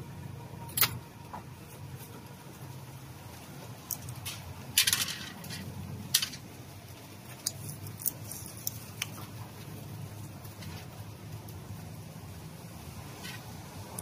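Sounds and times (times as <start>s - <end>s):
small metal parts clicking: 0.7s - 1.0s, 3.8s - 6.5s, 7.3s - 9.2s.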